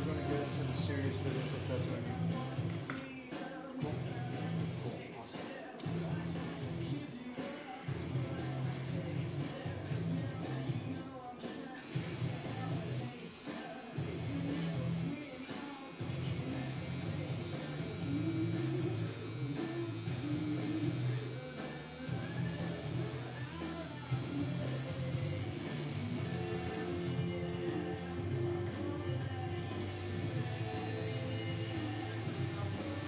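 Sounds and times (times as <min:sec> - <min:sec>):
tattoo machine buzzing: 0:11.8 - 0:27.2, 0:29.8 - 0:33.0.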